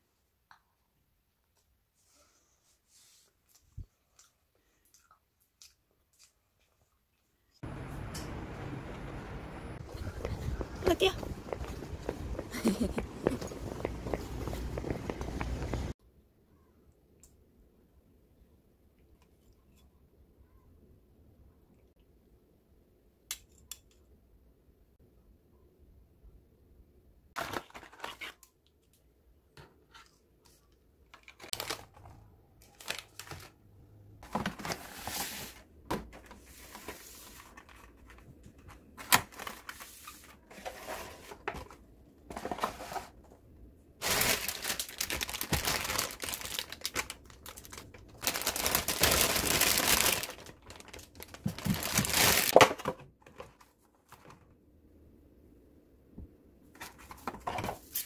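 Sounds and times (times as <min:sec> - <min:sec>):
plastic packaging crinkling: 0:31.2 - 0:33.6, 0:44.0 - 0:52.7.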